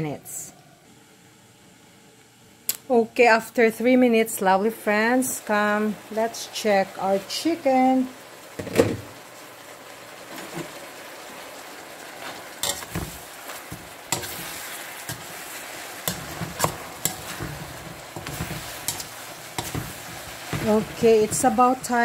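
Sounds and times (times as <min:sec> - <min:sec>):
chicken sizzling in a wok: 0:02.6 - 0:22.0
ladle scraping a pan: 0:12.2 - 0:22.0.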